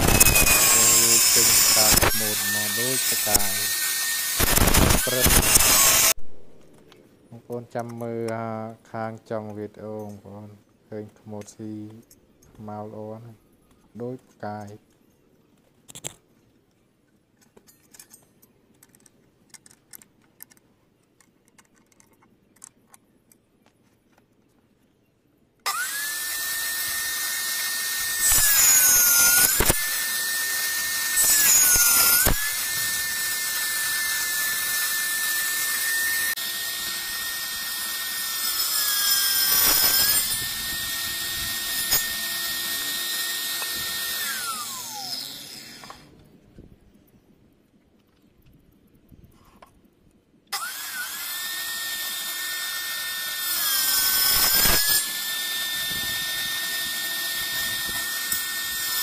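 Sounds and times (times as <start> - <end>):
saw cutting wood: 0.0 - 6.2, 25.6 - 46.2, 50.5 - 59.0
table saw whining: 0.0 - 6.2, 25.6 - 46.2, 50.5 - 59.0.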